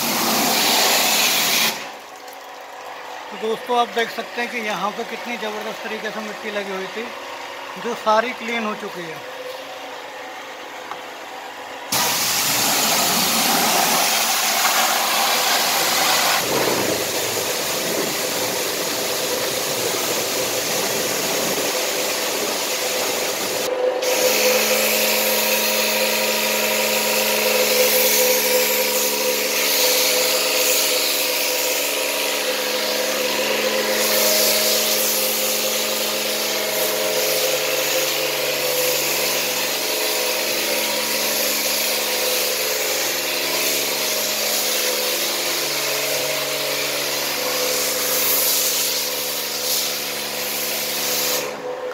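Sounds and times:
pressure washer spraying: 0:00.0 - 0:02.1, 0:11.9 - 0:51.7.

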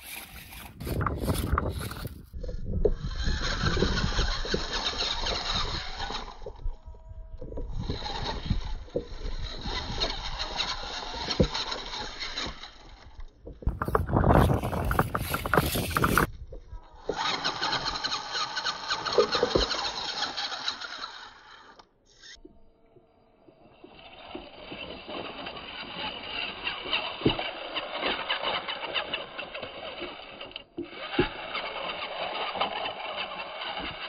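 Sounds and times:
rc car motor whining: 0:00.0 - 0:34.0
tyres knocking against rocks: 0:13.4 - 0:16.4.

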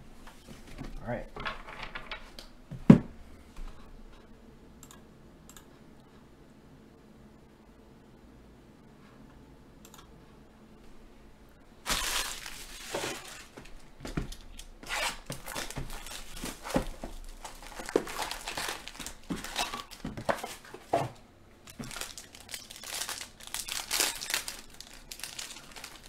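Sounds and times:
foil wrappers crinkling and tearing: 0:11.8 - 0:20.8, 0:21.6 - 0:26.0.

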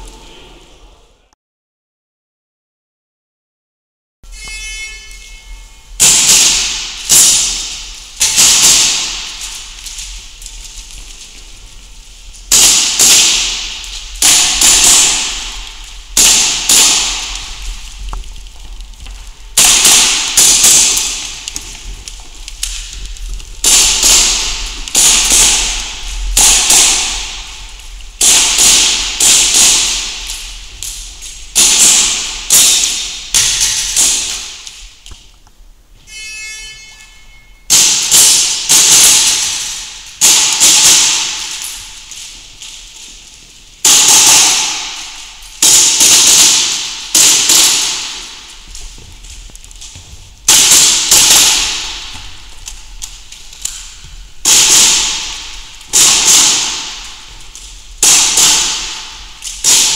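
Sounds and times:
airsoft pistol shots: 0:06.0 - 0:09.6, 0:12.5 - 0:17.6, 0:19.6 - 0:21.7, 0:23.6 - 0:27.6, 0:28.2 - 0:30.6, 0:31.5 - 0:34.8, 0:37.7 - 0:41.9, 0:43.8 - 0:48.5, 0:50.5 - 0:52.3, 0:54.4 - 0:57.3, 0:58.0 - 0:59.9
shot timer beep: 0:36.1 - 0:37.7.

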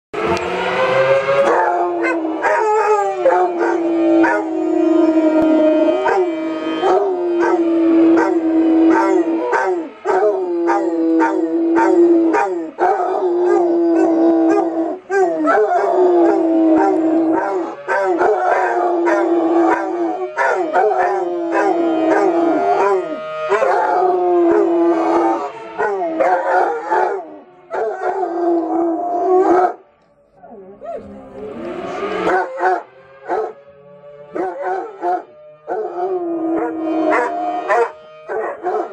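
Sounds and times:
dogs howling and barking: 0:00.2 - 0:38.9
fire siren wailing: 0:00.2 - 0:38.9.

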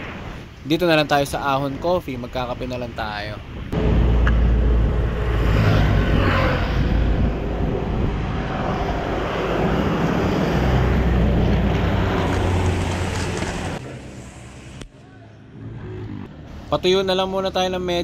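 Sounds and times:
wind buffeting microphone: 0:03.4 - 0:13.8.

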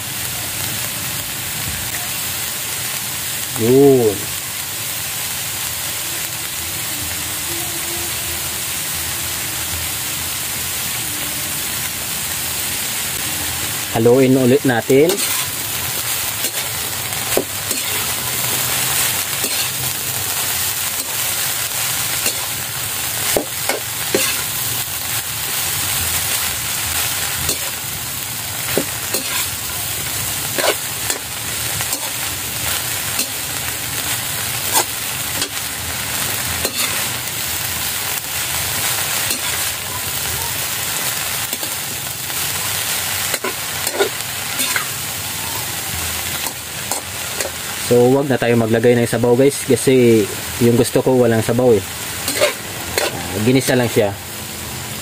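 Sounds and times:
food sizzling in a wok: 0:00.0 - 0:55.0
spatula scraping a pan: 0:15.1 - 0:15.6, 0:28.7 - 0:29.6, 0:30.4 - 0:32.3, 0:39.2 - 0:39.7, 0:43.3 - 0:44.9, 0:52.2 - 0:53.3.

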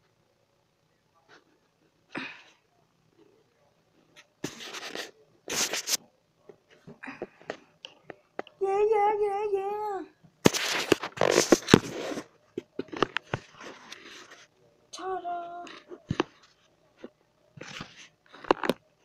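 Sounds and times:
child saying yeah: 0:08.6 - 0:10.1, 0:15.0 - 0:15.8.

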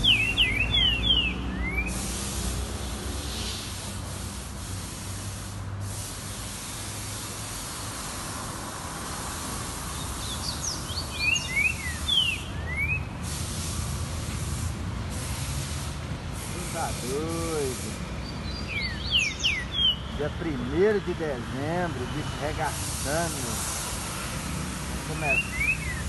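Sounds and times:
bird whistling sliding notes: 0:00.0 - 0:02.4, 0:10.2 - 0:13.1, 0:18.2 - 0:20.1, 0:25.2 - 0:26.0
steady background hiss: 0:00.0 - 0:26.0.

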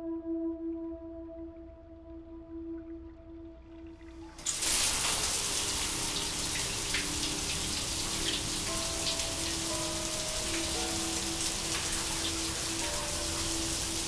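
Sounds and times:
low musical drone: 0:00.0 - 0:14.0
shower spraying water: 0:04.4 - 0:14.0.

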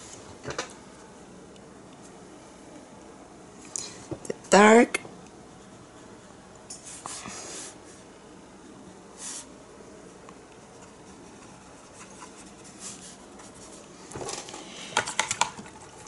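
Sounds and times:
paintbrush strokes on canvas: 0:09.2 - 0:13.9.

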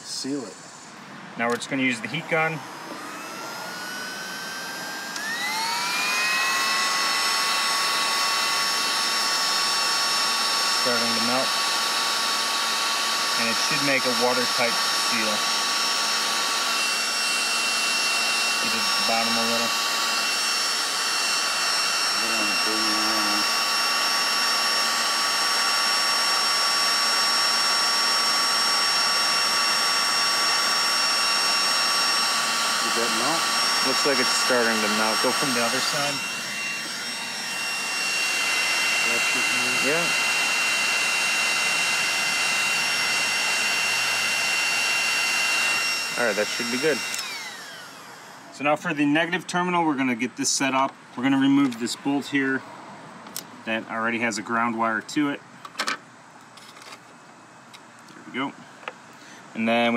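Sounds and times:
heat gun fan rushing and whining: 0:00.0 - 0:59.9
heat gun switch click: 0:47.1 - 0:47.3.

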